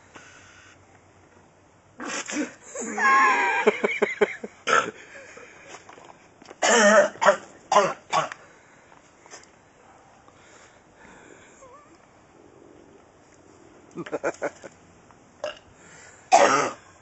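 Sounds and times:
man coughing and hacking: 4.6 - 5.0, 6.6 - 8.4, 16.3 - 16.8.

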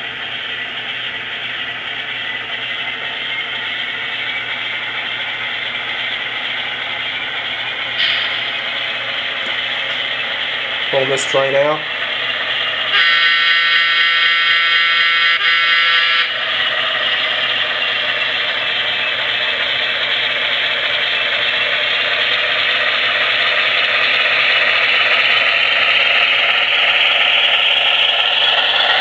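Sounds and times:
diesel engine sound: 0.0 - 29.0
model train horn: 12.9 - 16.4
model train wheel clatter: 16.4 - 29.0.

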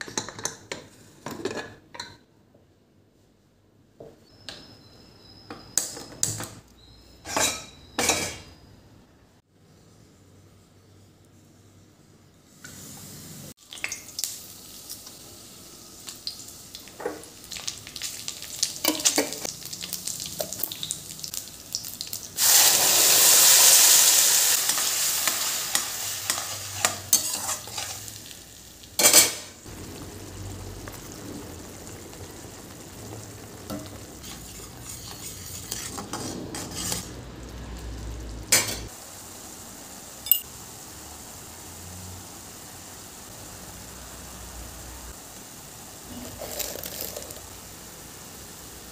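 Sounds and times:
oil sizzling: 12.5 - 48.9
spatula scraping a pan: 25.7 - 28.1, 34.2 - 37.1.

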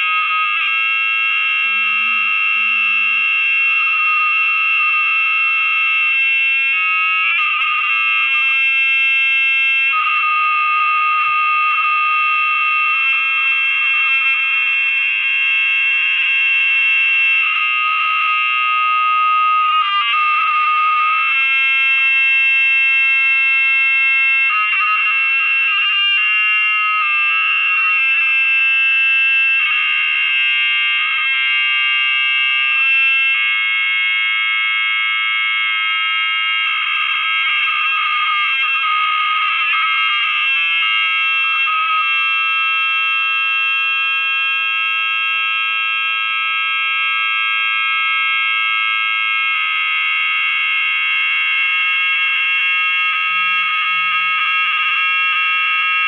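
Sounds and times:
high electronic buzz: 0.0 - 33.4, 34.9 - 44.6.

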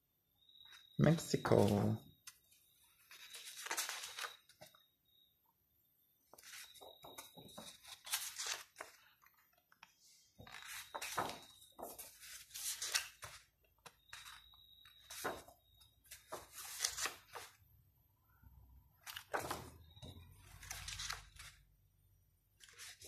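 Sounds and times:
stiff paper pages turning: 1.5 - 4.8, 6.3 - 15.5, 16.1 - 17.6, 19.0 - 19.7, 20.3 - 21.7, 22.6 - 23.0.

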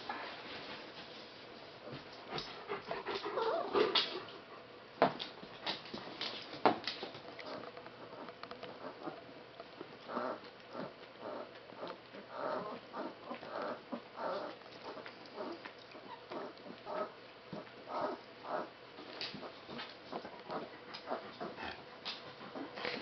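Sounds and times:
dogs snuffling and squeaking: 6.0 - 23.0.

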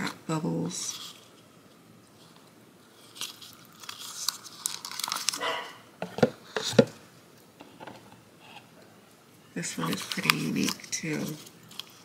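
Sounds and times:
plastic case crinkling and clicking: 3.2 - 5.4.

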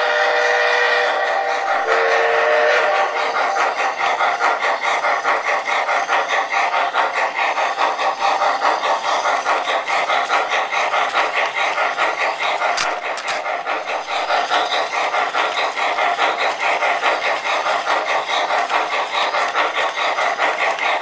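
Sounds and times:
model train whistle: 0.0 - 3.2
model train rumbling on track: 0.0 - 21.0
steam locomotive chuffing: 0.0 - 21.0.

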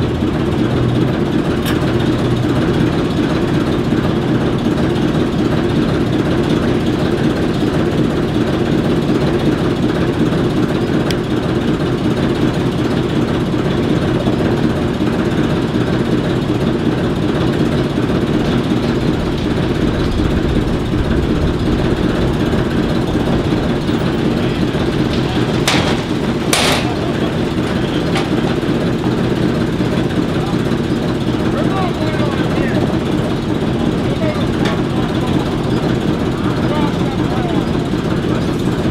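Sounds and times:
diesel locomotive engine idling: 0.0 - 38.9.

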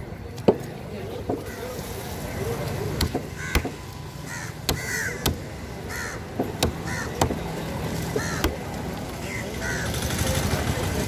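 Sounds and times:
cleaver chopping on wooden board: 3.0 - 3.8, 4.7 - 5.4, 6.4 - 7.4, 8.2 - 8.6
crows cawing: 3.3 - 7.4, 8.1 - 8.6, 9.2 - 10.0.

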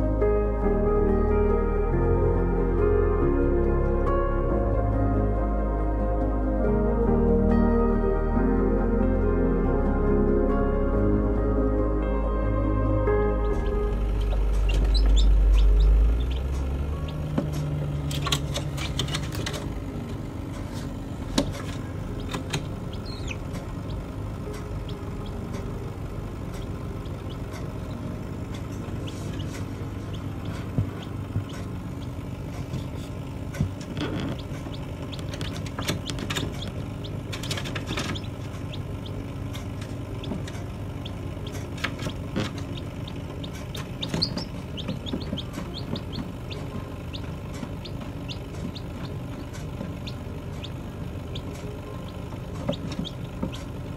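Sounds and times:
computer fan humming: 0.0 - 53.9
chicks peeping: 13.3 - 19.6, 21.4 - 53.9.

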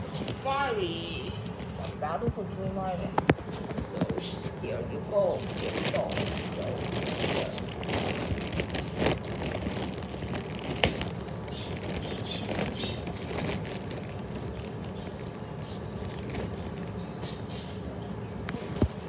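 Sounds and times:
plastic bag crinkling: 3.8 - 17.1.

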